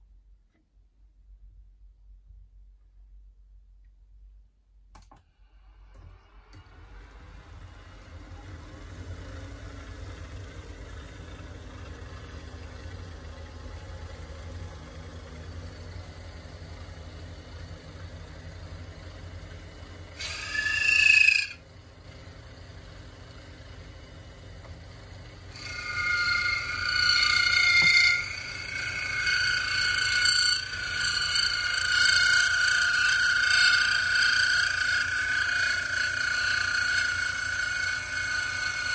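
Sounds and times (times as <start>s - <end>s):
milling machine motor hum: 5.6s - 38.9s
high-pitched cutter squeal: 19.1s - 21.7s, 25.4s - 38.9s.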